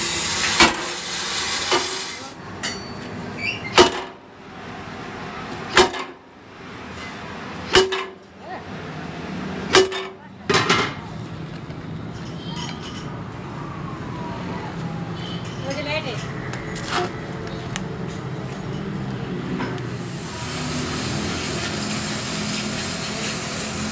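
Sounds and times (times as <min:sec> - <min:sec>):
gas torch hissing: 0:00.0 - 0:02.4, 0:20.0 - 0:23.9.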